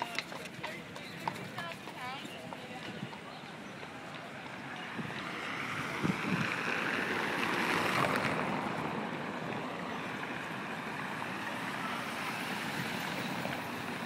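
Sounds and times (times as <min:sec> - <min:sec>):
car driving past: 0:04.8 - 0:14.0.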